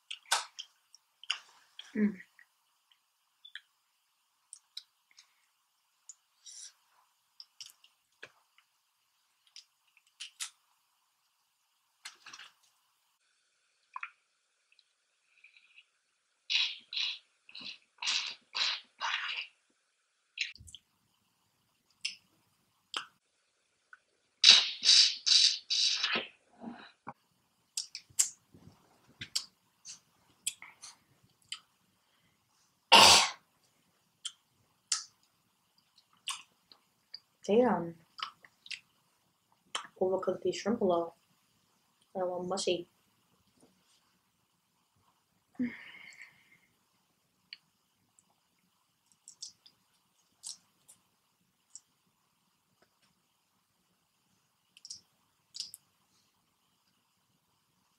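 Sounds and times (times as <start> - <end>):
lip smacks: 0.1 - 1.9, 9.5 - 10.6, 27.8 - 28.4, 29.2 - 31.7, 34.2 - 35.1, 36.0 - 36.5, 49.1 - 49.8, 50.4 - 51.0, 54.8 - 55.8.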